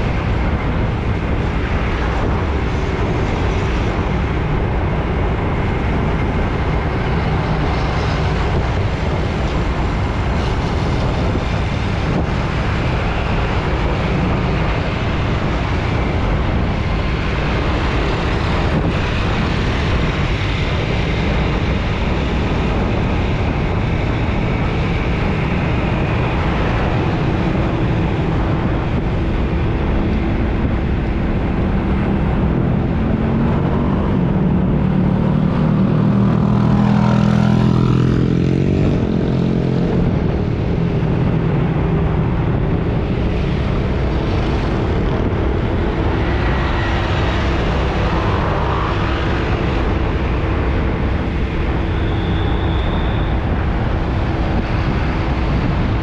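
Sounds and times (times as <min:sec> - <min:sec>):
road traffic passing: 0:00.0 - 0:56.0
faint steady engine tone: 0:50.5 - 0:55.9.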